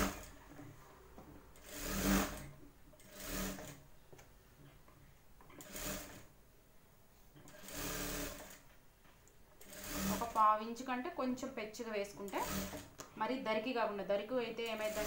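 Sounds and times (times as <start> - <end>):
sewing machine stitching: 0.0 - 0.7, 1.6 - 3.8, 5.5 - 6.3, 7.4 - 8.7, 9.6 - 10.5, 12.1 - 13.0, 14.6 - 15.0.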